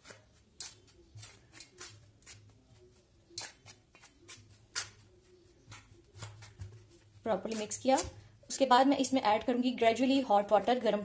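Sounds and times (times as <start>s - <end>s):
spoon stirring flour in bowl: 0.0s - 8.4s.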